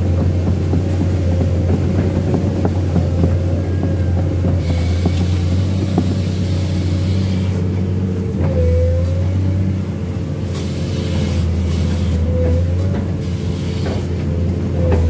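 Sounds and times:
excavator engine and hydraulics: 0.0 - 15.0.

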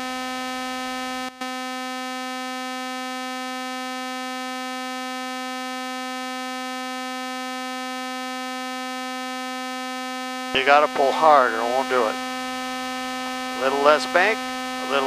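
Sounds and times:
stall warning horn steady tone: 10.6 - 15.0.

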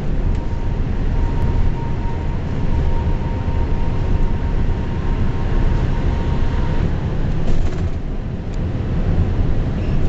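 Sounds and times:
faint steady whine: 0.0 - 7.3
train running rumble: 0.0 - 10.0.

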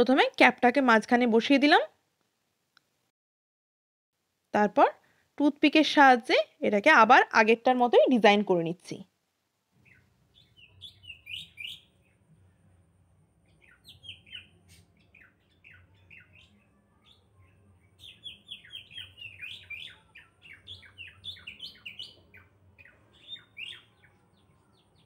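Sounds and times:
small birds chirping: 9.7 - 12.6, 13.4 - 25.0
low steady hum: 11.9 - 13.9.

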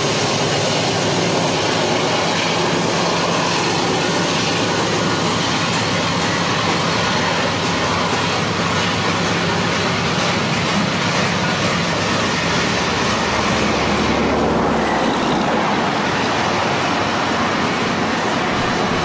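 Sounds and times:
train wheels on rail: 0.0 - 19.0
low rumble: 18.5 - 19.0.

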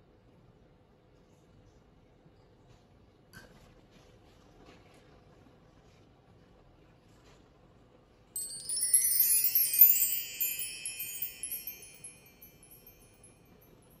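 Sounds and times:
wind chime shower: 8.4 - 14.0.

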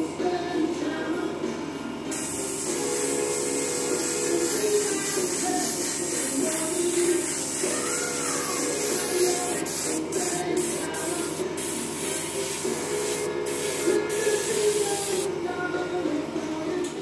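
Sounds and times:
airbrush spraying hiss: 2.1 - 15.3.

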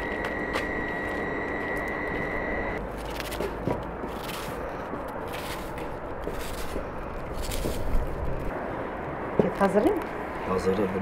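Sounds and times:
high-pitched tone: 0.0 - 2.8
outdoor background noise: 0.0 - 11.0.

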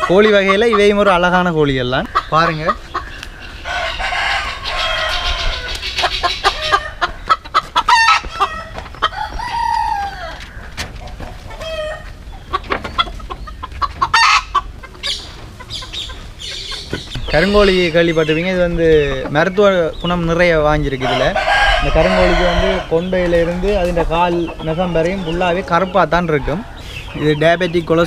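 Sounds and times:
chickens clucking: 0.0 - 28.0
rooster crowing: 3.6 - 5.8, 8.0 - 10.7, 21.0 - 23.0.

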